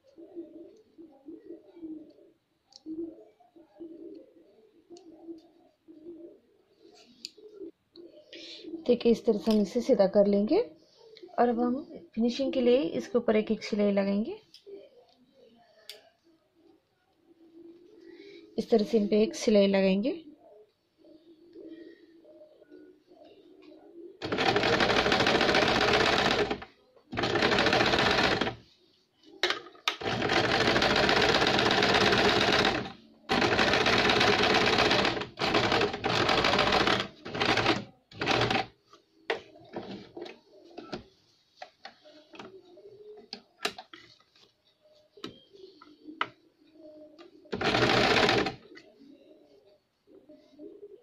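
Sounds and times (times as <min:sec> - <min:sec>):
electric sewing machine running: 0:24.2 - 0:26.6, 0:27.2 - 0:28.6, 0:30.0 - 0:38.7, 0:47.6 - 0:48.6.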